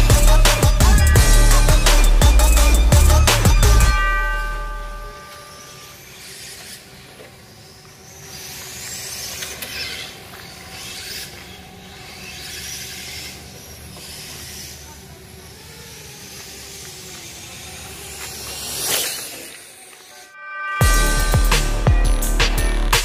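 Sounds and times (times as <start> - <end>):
background music: 0.0 - 5.4, 20.2 - 23.0
rc car whooshing past: 0.5 - 20.4.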